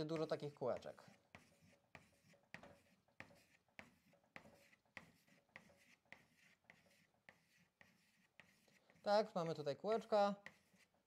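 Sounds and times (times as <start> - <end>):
chalk scratching on chalkboard: 0.0 - 11.0.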